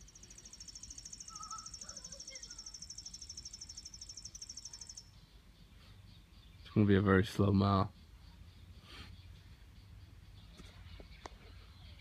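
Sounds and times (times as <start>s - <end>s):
cricket trilling: 0.0s - 5.1s.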